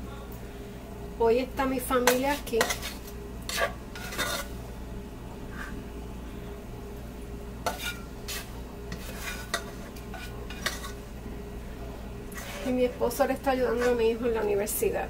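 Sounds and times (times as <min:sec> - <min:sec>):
low steady hum: 0:00.0 - 0:15.0
saucepan scraping and clinking: 0:02.1 - 0:04.6, 0:07.7 - 0:11.0.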